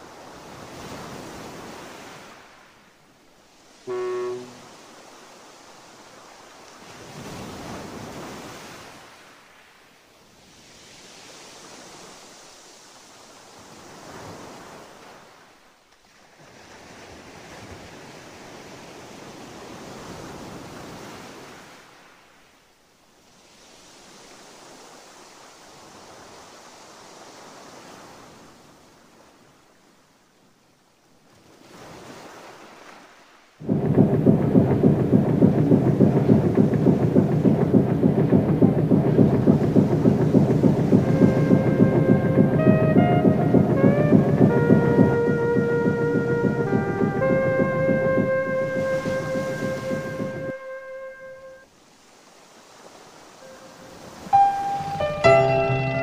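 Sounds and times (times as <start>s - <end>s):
sea waves washing in: 0.0s - 56.0s
loud low droning tone: 33.6s - 51.6s.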